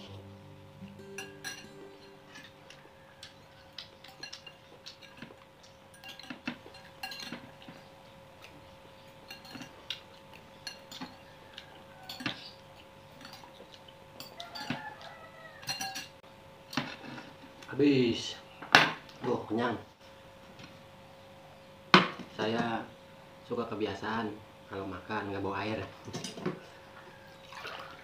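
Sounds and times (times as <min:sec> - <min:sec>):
cutlery clinking on ceramic bowl: 0:01.0 - 0:08.5, 0:09.2 - 0:17.0.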